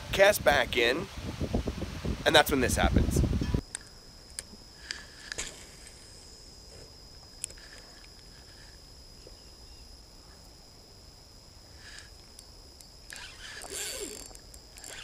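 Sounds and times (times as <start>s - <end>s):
high-pitched insect tone: 0.1s - 15.0s
fishing reel click: 13.1s - 15.0s
reel and rod handling noise: 13.1s - 15.0s.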